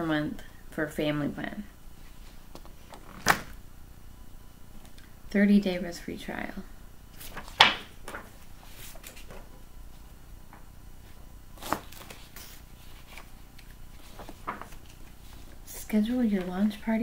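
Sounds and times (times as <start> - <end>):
paper rustling: 7.2 - 9.6, 11.6 - 15.7.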